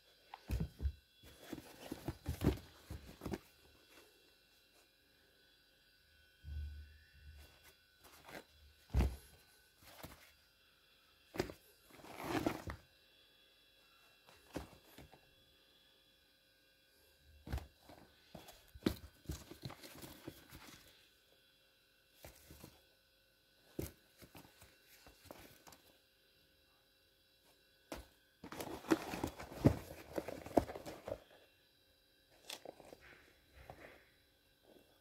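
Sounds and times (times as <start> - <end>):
rustling and scuffing: 0.3 - 4.0, 7.4 - 10.3, 11.4 - 12.8, 27.9 - 31.4.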